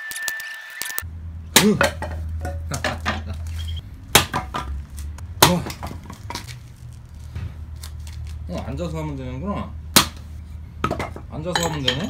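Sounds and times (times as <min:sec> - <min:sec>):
hatchet striking firewood: 0:01.5 - 0:03.2, 0:04.1 - 0:06.5, 0:09.9 - 0:11.2.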